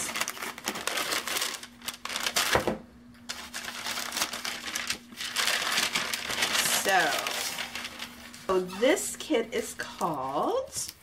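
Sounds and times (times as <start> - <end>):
paper bag crinkling: 0.0 - 8.6.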